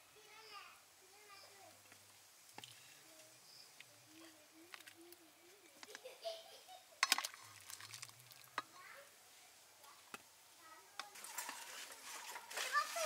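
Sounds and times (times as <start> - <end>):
ladle scraping in metal pot: 11.0 - 13.0.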